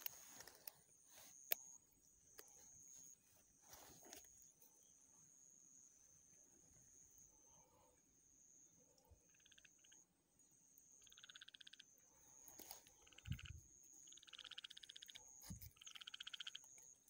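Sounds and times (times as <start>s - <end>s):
frogs calling in trills: 3.8s - 17.0s.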